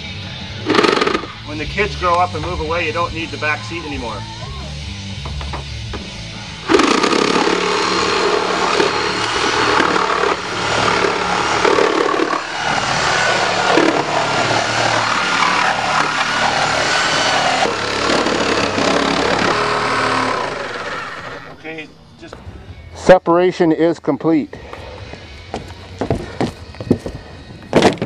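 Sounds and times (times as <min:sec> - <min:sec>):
reciprocating saw cutting metal: 0:00.6 - 0:01.7, 0:06.4 - 0:21.7.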